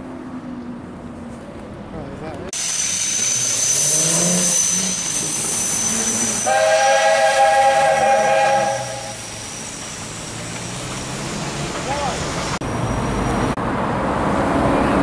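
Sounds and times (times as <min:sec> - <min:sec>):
steam whistle chord: 0:02.6 - 0:09.8
steam engine hissing: 0:02.6 - 0:12.6.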